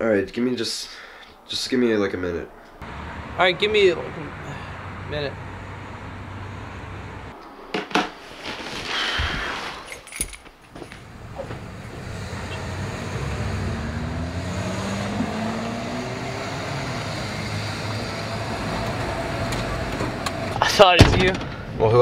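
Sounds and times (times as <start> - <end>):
car engine rumbling: 2.8 - 7.3, 10.8 - 21.8
short rustle: 8.2 - 11.0.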